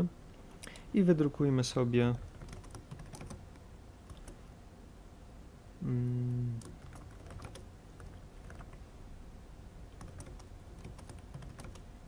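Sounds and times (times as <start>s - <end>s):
keyboard typing: 2.2s - 4.4s, 6.6s - 8.8s, 9.9s - 11.9s.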